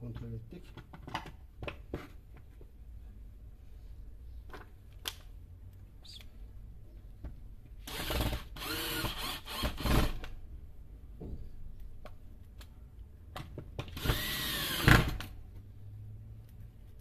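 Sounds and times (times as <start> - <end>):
cordless drill motor whining: 7.9 - 10.1, 14.0 - 15.1.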